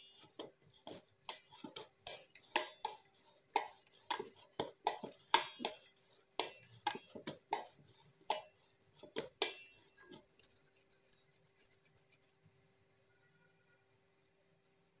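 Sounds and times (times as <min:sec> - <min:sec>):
dough knocking against steel bowl: 0:00.0 - 0:10.3.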